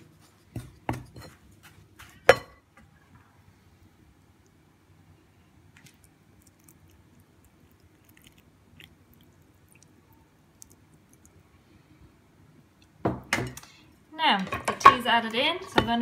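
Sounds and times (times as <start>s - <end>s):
low steady hum: 0.0s - 16.0s
wet ticks of tea pouring: 5.8s - 11.4s.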